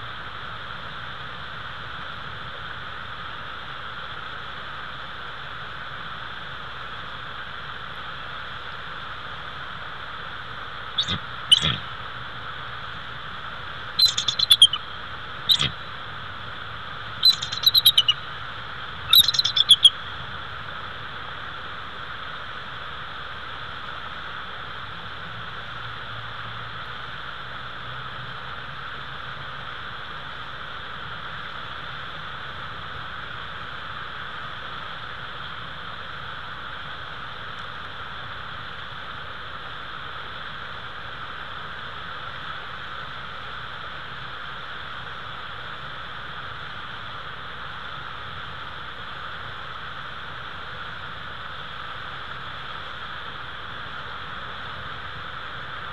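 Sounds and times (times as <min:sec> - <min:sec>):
steady hiss: 0:00.0 - 0:55.9
eagle chittering calls: 0:11.0 - 0:12.0, 0:13.9 - 0:16.0, 0:17.1 - 0:20.3.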